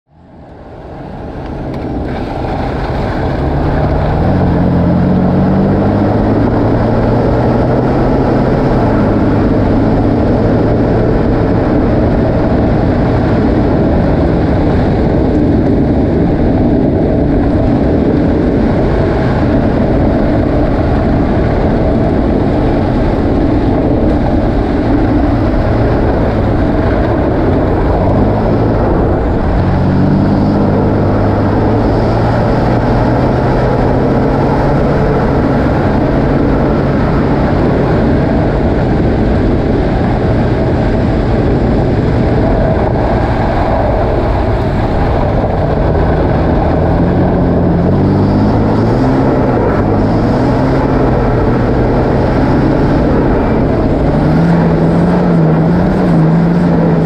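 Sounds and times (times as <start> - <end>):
car engine: 0.1 - 57.0
tyre and road noise: 0.1 - 57.0.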